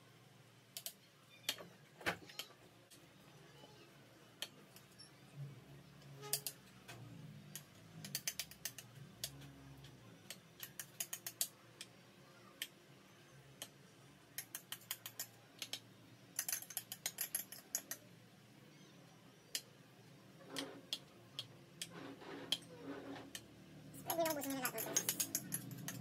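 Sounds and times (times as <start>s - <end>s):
utensil tapping and scraping bowl: 24.2s - 26.0s.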